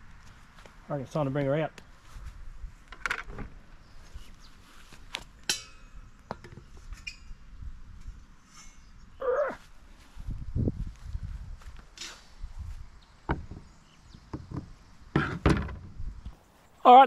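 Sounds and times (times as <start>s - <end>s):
metal clanks: 5.4s - 6.4s.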